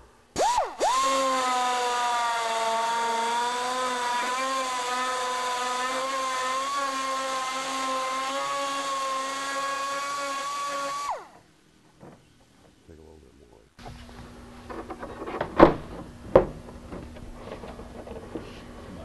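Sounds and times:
die grinder whining: 0.4s - 11.4s.

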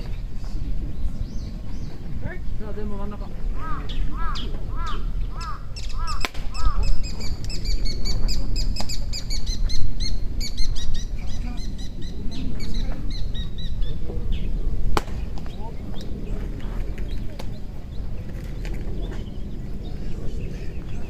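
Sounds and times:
low rumble: 0.0s - 21.0s
small birds chirping: 0.0s - 21.0s.

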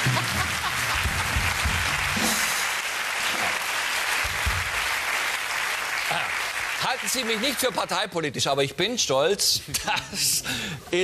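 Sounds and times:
studio audience applauding: 0.0s - 8.4s.

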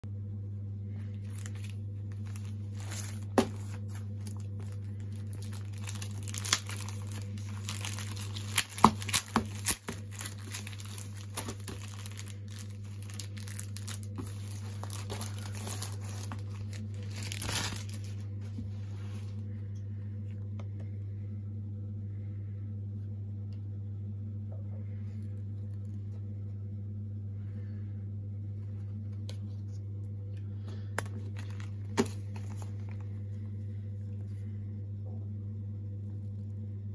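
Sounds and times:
steady low hum: 0.0s - 36.9s
plastic wrapping crinkling: 1.2s - 18.4s, 31.0s - 33.2s.

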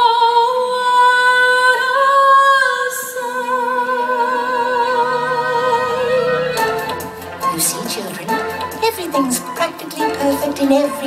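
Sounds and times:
woman singing long note: 2.0s - 6.9s
low sustained note: 3.8s - 8.2s.

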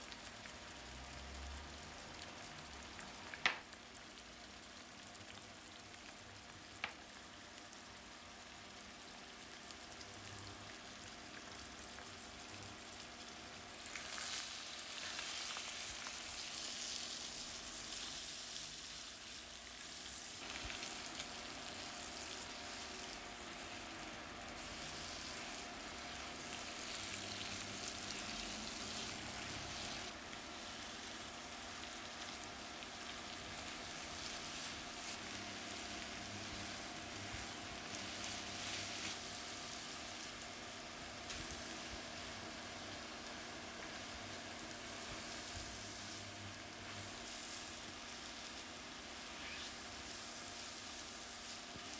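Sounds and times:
eggs and onion sizzling in pan: 0.0s - 51.9s.

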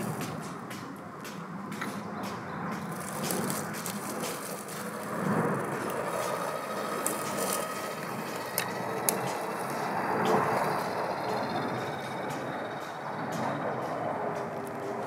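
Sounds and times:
tyres crunching through pine needles: 2.8s - 11.2s
toy car motor whirring: 3.2s - 12.1s.

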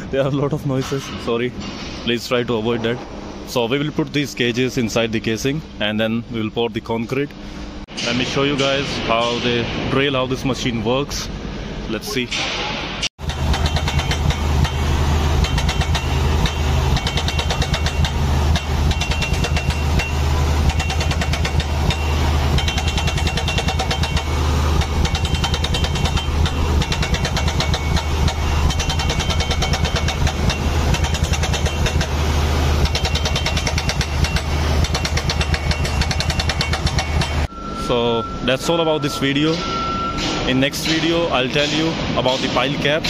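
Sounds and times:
drill rattling clatter: 13.2s - 37.5s
drill rig engine humming: 13.2s - 40.2s.

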